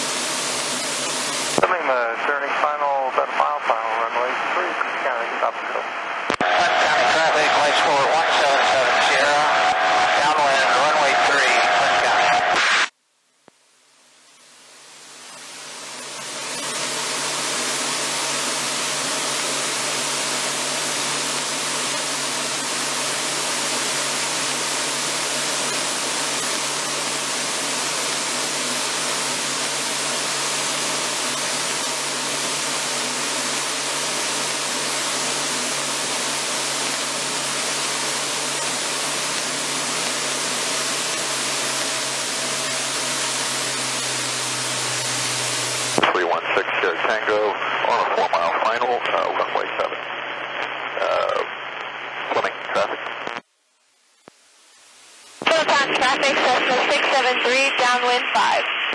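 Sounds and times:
aircraft engine and propeller drone: 0.0 - 2.0, 15.8 - 46.1.

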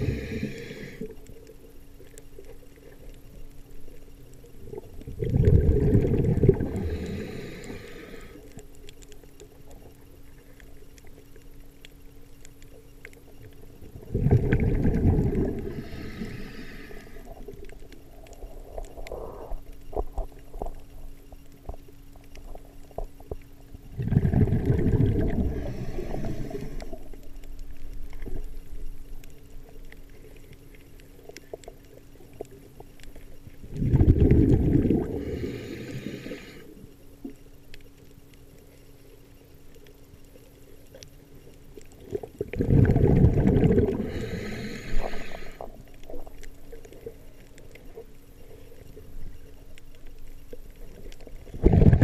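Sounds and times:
underwater breath bubbling: 0.0 - 1.2, 5.1 - 8.5, 14.0 - 20.8, 24.0 - 27.2, 33.6 - 36.8, 42.1 - 46.5, 51.5 - 52.0
faint steady hum: 0.0 - 52.0
small clicks: 0.4 - 34.4, 35.8 - 42.6, 43.2 - 52.0.

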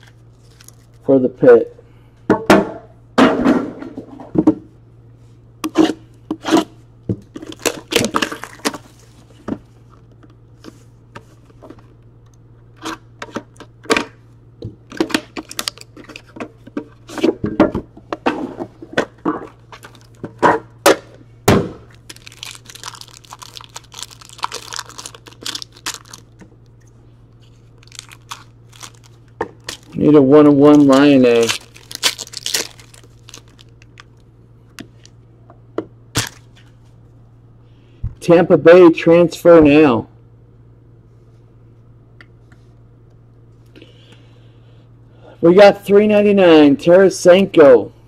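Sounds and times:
foil wrapper crinkling and tearing: 0.0 - 1.1, 7.4 - 9.2, 15.1 - 16.3, 19.8 - 20.2, 21.9 - 26.4, 27.4 - 34.2.

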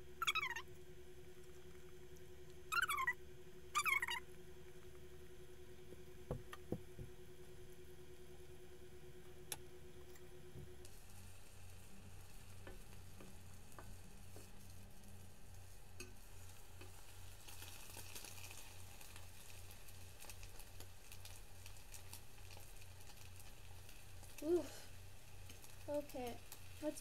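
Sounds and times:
egg sizzling in a skillet: 10.8 - 27.0.

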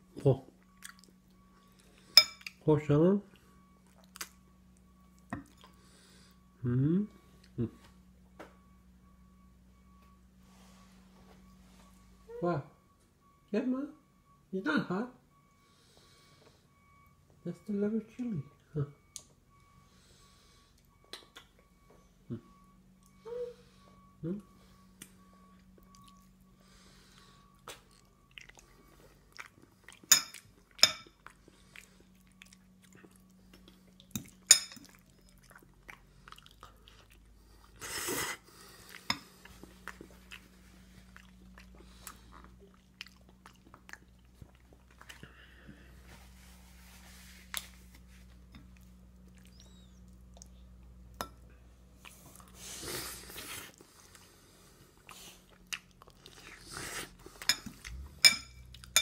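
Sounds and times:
toddler chewing: 27.1 - 45.4, 54.9 - 59.0.

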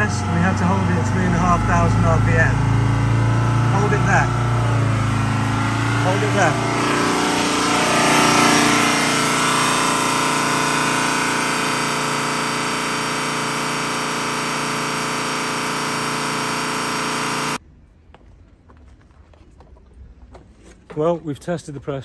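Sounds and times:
diesel engine running: 0.0 - 17.6.

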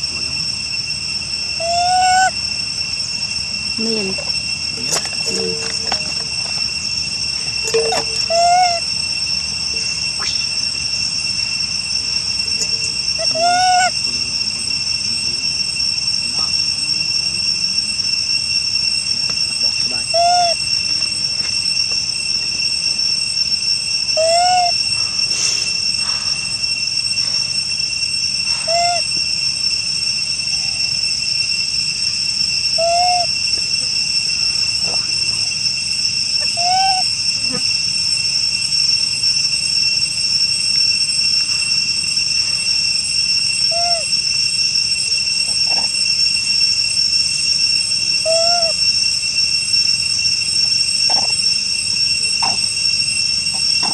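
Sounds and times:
forest insects droning: 0.0 - 53.9
rising and falling call: 1.6 - 2.4, 7.4 - 8.9, 9.7 - 10.8, 12.4 - 14.2, 20.0 - 20.7, 24.2 - 24.8, 28.5 - 29.1, 32.8 - 33.4, 36.3 - 37.6, 43.6 - 44.2, 48.2 - 48.8.

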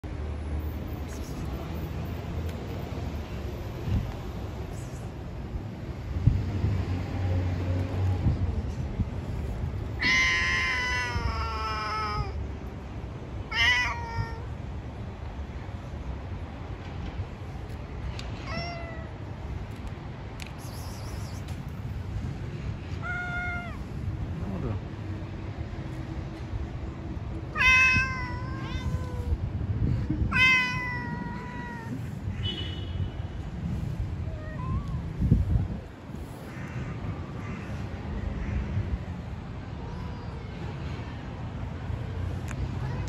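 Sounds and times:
cat meowing: 10.0 - 12.4, 13.5 - 14.6, 18.4 - 19.2, 22.9 - 24.0, 27.5 - 29.4, 30.2 - 32.1, 34.2 - 35.1.

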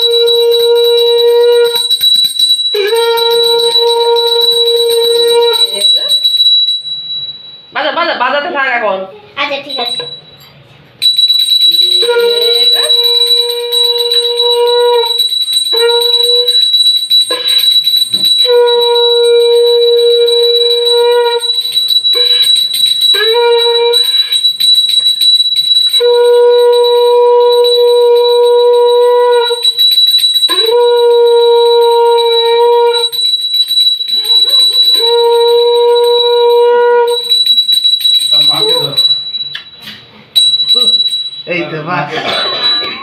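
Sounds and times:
conch shell blown: 0.0 - 2.0, 2.7 - 5.8, 12.0 - 16.6, 17.3 - 21.5, 23.1 - 24.4, 25.9 - 29.8, 30.5 - 33.2, 34.2 - 37.4
steady high ringing tone: 0.0 - 43.0.

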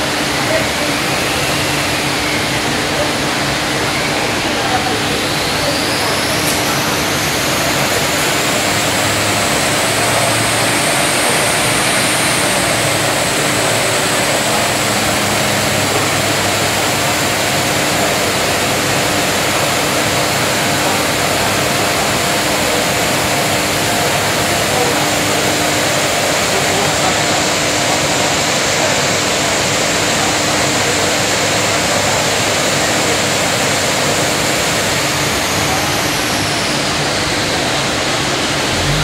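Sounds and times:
car engine running hard: 0.0 - 39.0
high whine: 0.0 - 39.0.

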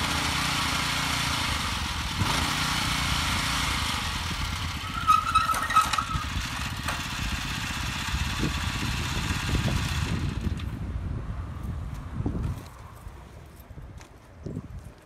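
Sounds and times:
small tiller engine running: 0.0 - 10.7.

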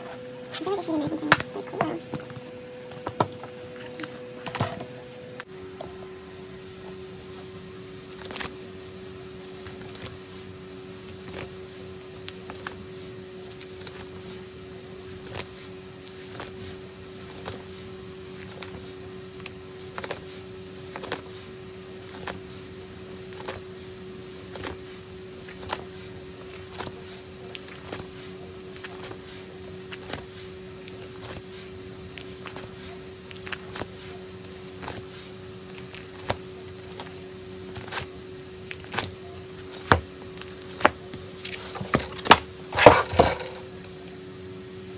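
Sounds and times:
steady low hum: 0.0 - 44.9
plastic pages crinkling: 24.3 - 43.6.

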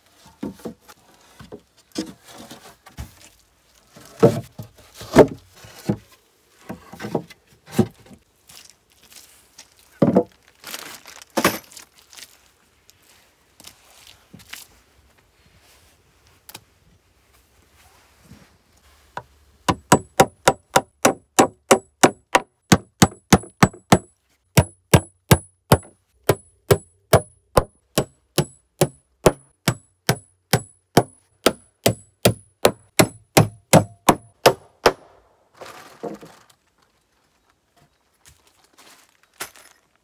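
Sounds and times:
hammer striking nails: 19.7 - 35.1.

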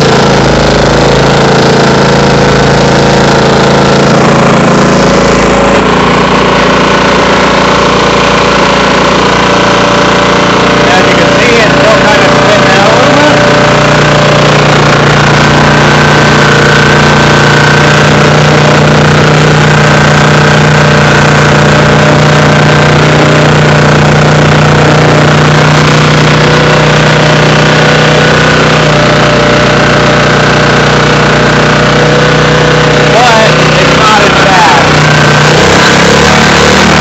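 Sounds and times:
generator engine running: 0.0 - 37.0.

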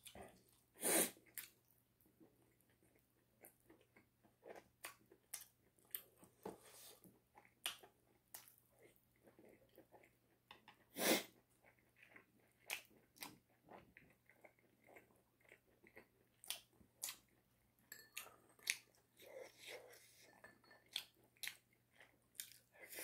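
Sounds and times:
person chewing and crunching: 7.3 - 23.0.

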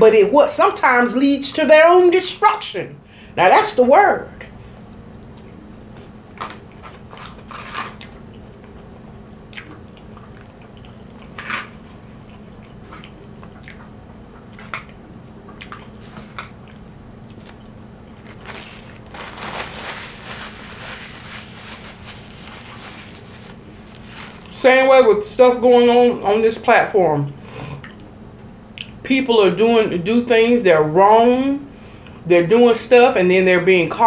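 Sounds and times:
chewing food: 5.2 - 19.1
paper napkin rustling: 17.3 - 25.4.

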